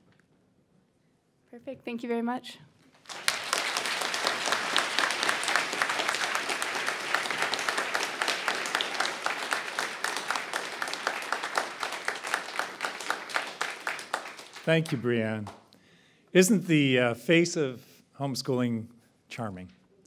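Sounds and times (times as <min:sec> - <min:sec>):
audience applauding: 0:03.0 - 0:15.6.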